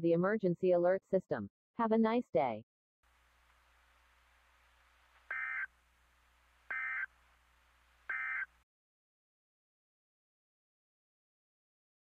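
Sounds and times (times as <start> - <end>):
faint low hum: 3.1 - 8.6
digital data tone bursts: 5.3 - 5.7, 6.7 - 7.1, 8.1 - 8.5.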